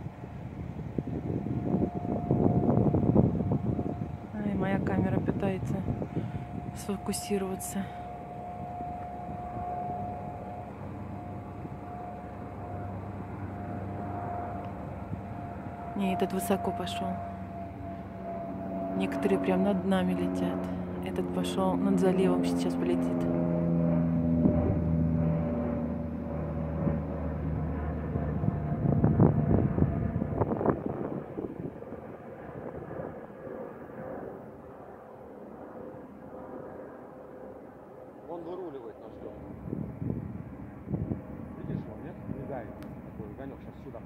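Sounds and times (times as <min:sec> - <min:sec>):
wind buffeting microphone: 0:00.0 - 0:34.5, 0:39.2 - 0:44.0
distant jet airliner climbing: 0:00.0 - 0:44.0
plane engines droning: 0:00.0 - 0:44.0
thin steady whine: 0:00.0 - 0:44.0.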